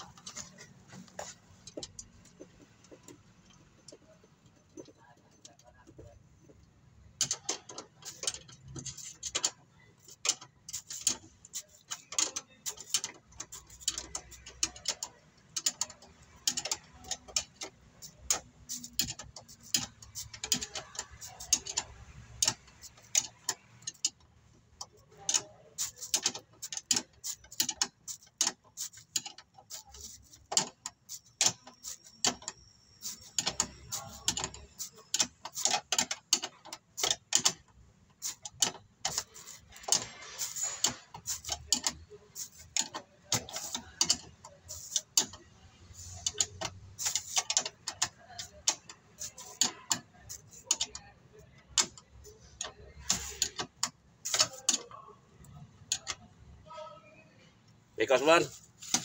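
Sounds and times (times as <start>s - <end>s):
ratchet wrench clicking: 7.2s - 24.2s, 24.8s - 51.0s.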